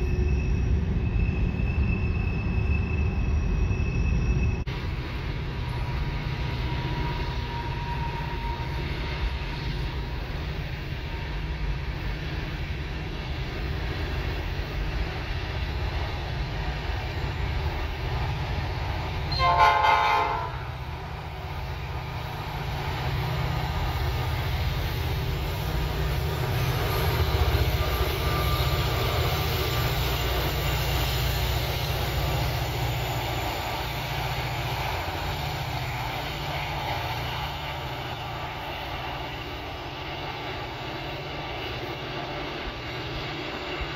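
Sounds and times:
diesel locomotive engines: 0:00.0 - 0:43.9
train cars rumbling past: 0:00.0 - 0:43.9
locomotive horn blast: 0:19.3 - 0:20.8.

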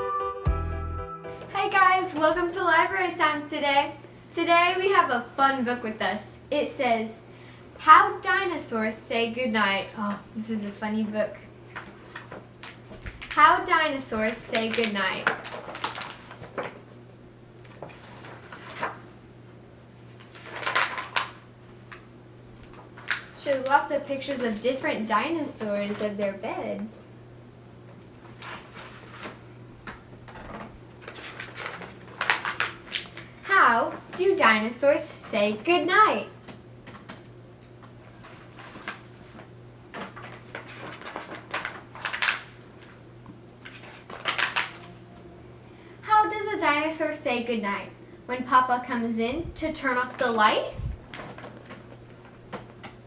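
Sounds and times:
book pages rustling and flapping: 0:11.7 - 0:13.4, 0:14.1 - 0:17.0, 0:17.6 - 0:19.1, 0:20.0 - 0:24.8, 0:25.6 - 0:26.4, 0:27.9 - 0:35.8, 0:37.8 - 0:43.0, 0:43.6 - 0:45.0, 0:49.9 - 0:53.0.

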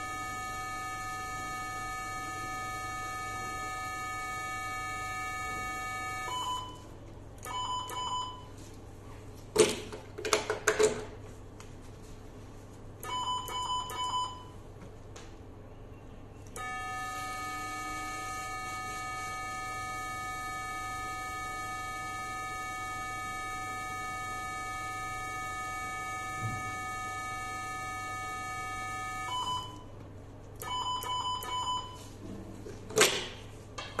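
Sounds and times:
steady multi-pitch activation tone: 0:16.6 - 0:29.8
short electronic beeps: 0:30.6 - 0:32.0.

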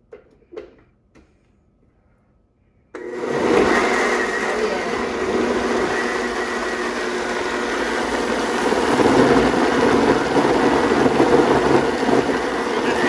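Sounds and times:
blender running: 0:03.0 - 0:13.0.

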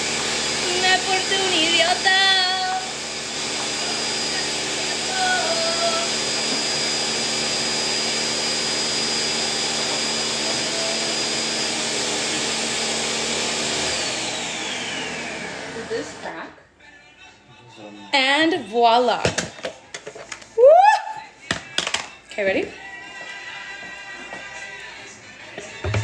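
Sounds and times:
blender motor running: 0:00.0 - 0:16.4.

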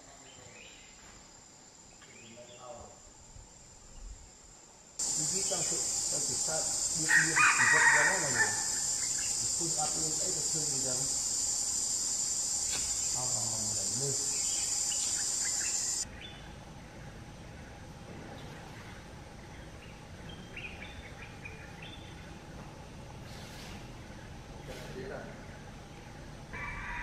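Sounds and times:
high-pitched insect drone: 0:05.0 - 0:16.0
rooster crowing: 0:06.4 - 0:09.0, 0:26.5 - 0:27.0.

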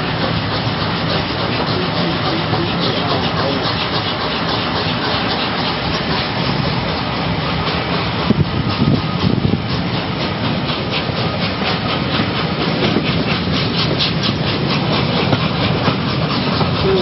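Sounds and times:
train wheels beating on rails: 0:00.0 - 0:17.0
wind rushing: 0:06.5 - 0:11.2.

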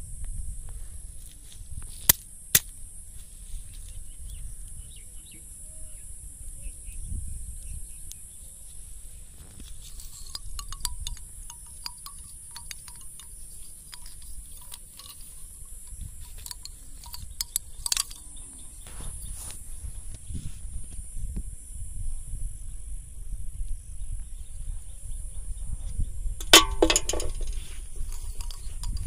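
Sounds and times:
light clicks and taps: 0:09.6 - 0:18.3.

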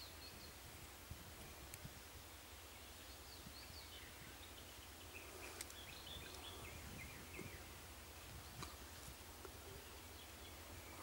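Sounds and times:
birds chirping: 0:00.0 - 0:11.0
faint click: 0:01.7 - 0:01.9, 0:05.4 - 0:06.5.

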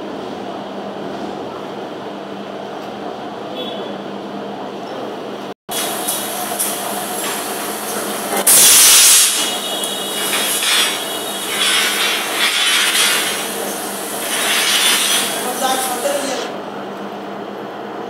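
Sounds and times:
bars worked through machine: 0:05.7 - 0:16.5
rebar cutting machine humming: 0:05.7 - 0:16.6.

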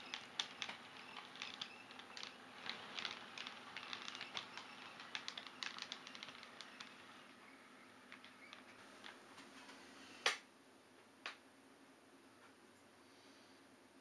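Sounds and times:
model train wheels clicking: 0:00.0 - 0:09.2.

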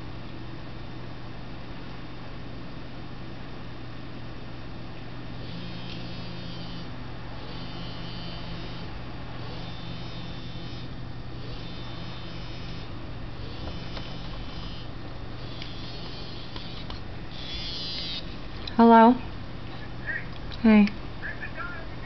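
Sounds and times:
steady low hum: 0:00.0 - 0:22.0
phone buzzing in pulses: 0:05.4 - 0:19.2.

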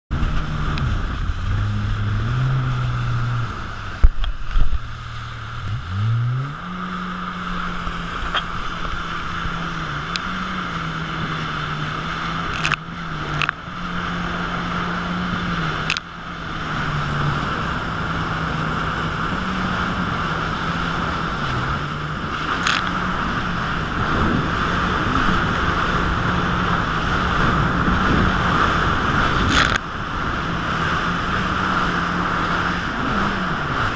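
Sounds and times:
jet ski engine running: 0:00.1 - 0:33.9
rushing water and spray: 0:00.1 - 0:33.9.

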